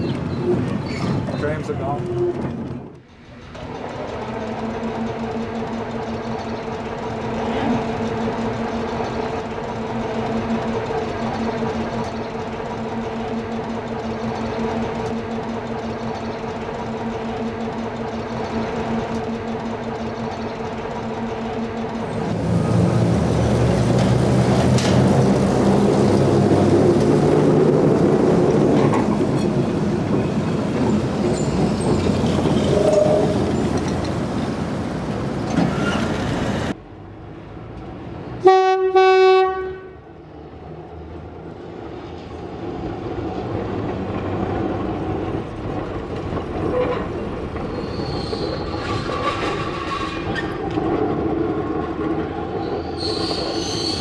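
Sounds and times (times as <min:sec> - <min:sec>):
tram rumbling on rails: 0:00.0 - 0:54.0
tram horn blast: 0:38.4 - 0:40.1.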